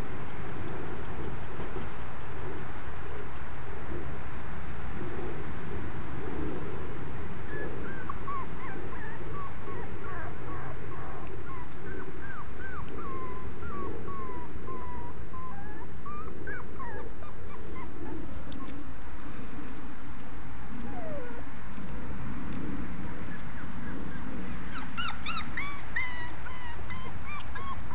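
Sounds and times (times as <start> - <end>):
low background rumble: 0.0 - 27.9
puppies whimpering and whining: 7.2 - 18.8, 20.8 - 21.5, 23.2 - 27.9.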